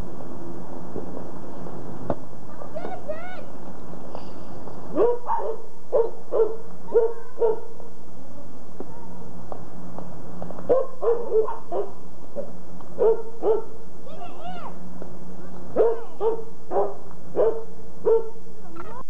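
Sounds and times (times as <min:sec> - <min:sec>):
dog barking: 0:04.9 - 0:07.9, 0:10.7 - 0:13.8, 0:15.8 - 0:18.4.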